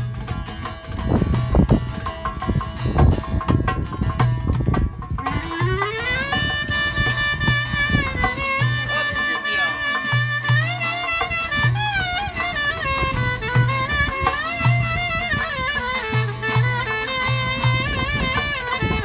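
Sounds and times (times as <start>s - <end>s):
hand drum strokes: 0.0s - 19.0s
clarinet folk melody: 5.2s - 19.0s.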